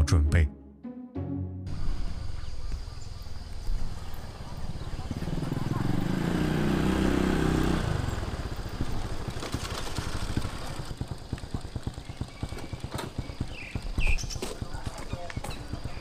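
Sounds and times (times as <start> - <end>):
small engine running: 3.7 - 16.0.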